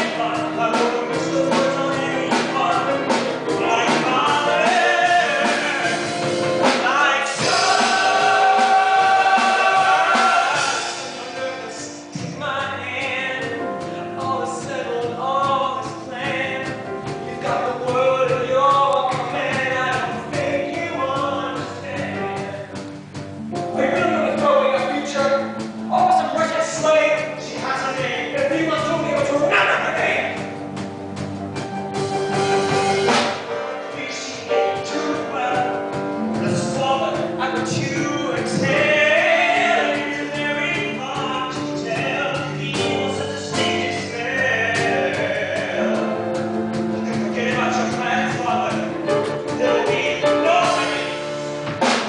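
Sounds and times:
male chorus singing: 0:00.0 - 0:12.4, 0:36.4 - 0:46.2
male soloist singing: 0:00.0 - 0:23.0, 0:23.6 - 0:30.6, 0:33.8 - 0:52.0
instrumental accompaniment: 0:00.0 - 0:52.0.

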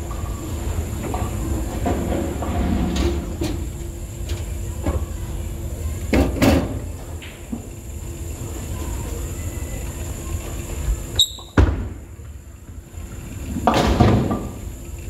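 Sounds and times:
bowling ball rolling on wooden lane: 0:13.0 - 0:14.7.

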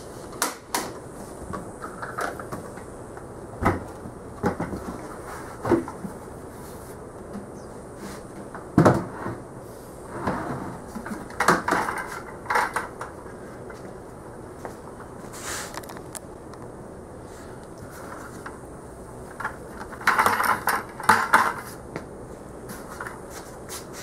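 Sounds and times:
plastic buckets knocking and scraping: 0:03.6 - 0:06.3, 0:08.3 - 0:09.5, 0:10.1 - 0:13.8, 0:19.3 - 0:21.8.

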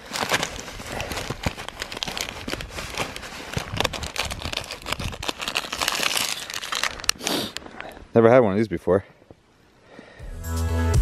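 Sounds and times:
backpack fabric rustling: 0:00.0 - 0:06.6
snack packaging crinkling: 0:00.0 - 0:07.7.

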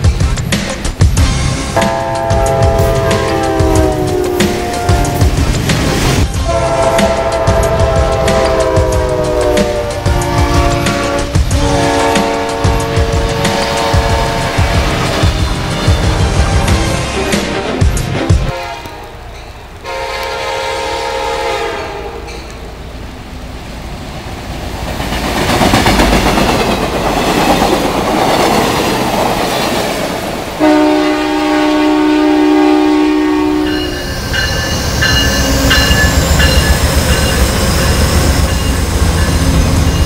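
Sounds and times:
train cars rumbling and clacking: 0:00.0 - 0:40.0
train air horn: 0:01.8 - 0:05.5, 0:06.3 - 0:16.1, 0:18.4 - 0:19.2, 0:19.8 - 0:22.4, 0:30.6 - 0:36.6
thin high ringing tones: 0:33.6 - 0:40.0.

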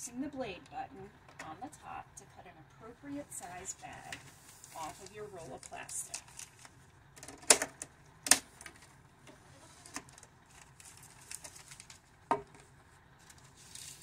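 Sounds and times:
plastic film rustling: 0:03.4 - 0:07.5, 0:08.3 - 0:14.0.

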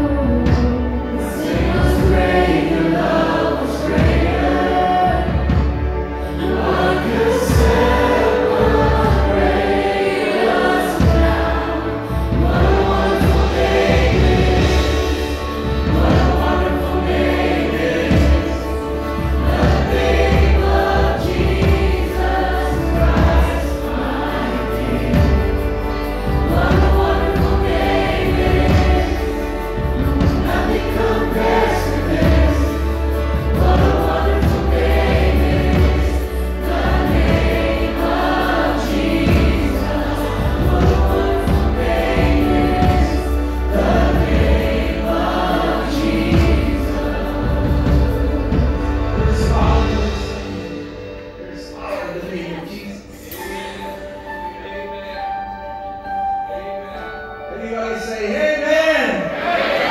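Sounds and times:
drum and cymbal hits: 0:00.0 - 0:54.4
group singing worship song: 0:00.0 - 0:59.9.

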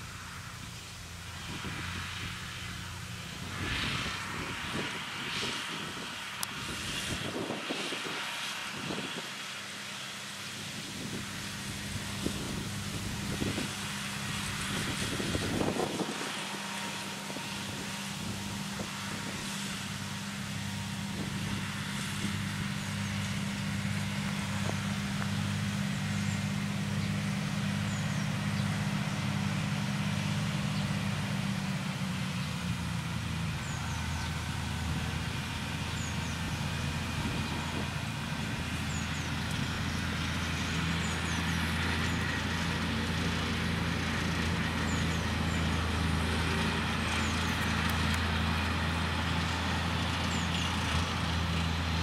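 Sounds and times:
tractor engine drone while mowing: 0:00.0 - 0:52.0.

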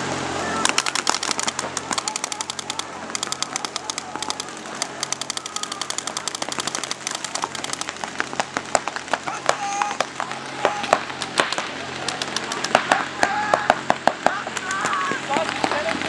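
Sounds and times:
paintball markers firing: 0:00.7 - 0:09.6, 0:10.7 - 0:13.1.

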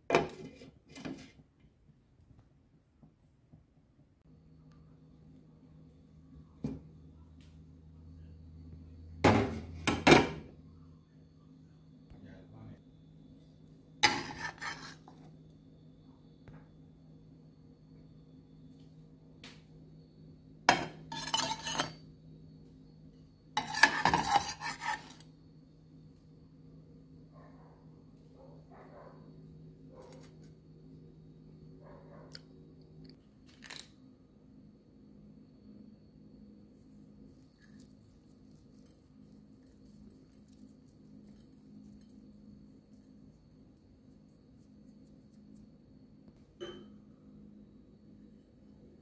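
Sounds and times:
low steady hum: 0:01.7 - 0:49.0
spatula scraping frying pan: 0:14.0 - 0:15.3, 0:20.7 - 0:22.0, 0:23.6 - 0:25.2
light ticks of sprinkled flakes: 0:36.7 - 0:45.8.

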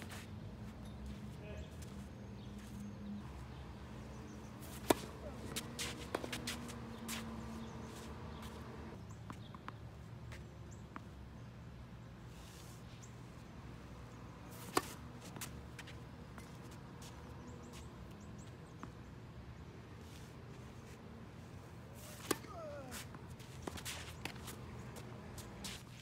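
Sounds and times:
tennis ball bounces: 0:03.5 - 0:11.2, 0:14.5 - 0:19.1, 0:22.0 - 0:26.0
racket striking ball: 0:04.1 - 0:08.9, 0:14.6 - 0:15.5, 0:22.0 - 0:24.7.

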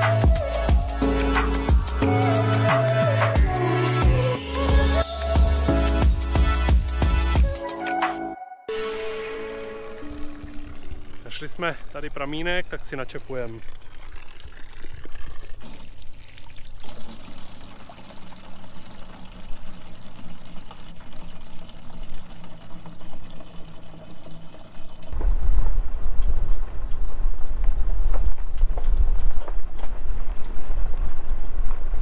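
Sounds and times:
water pouring into containers: 0:08.8 - 0:25.6.

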